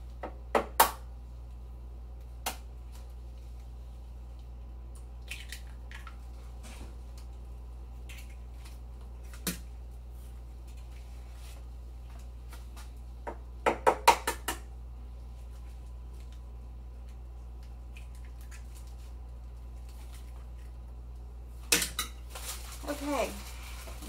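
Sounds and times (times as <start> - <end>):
plastic rustle: 22.2 - 24.0.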